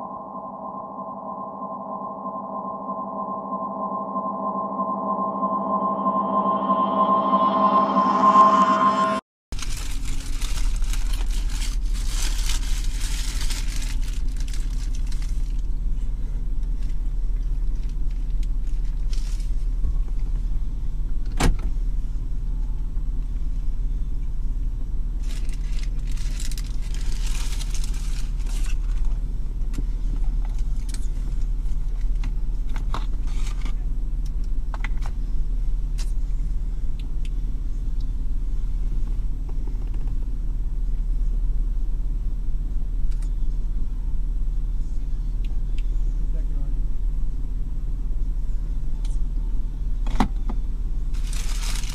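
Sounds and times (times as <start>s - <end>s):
paper wrapper crinkling: 9.6s - 15.4s, 51.2s - 51.9s.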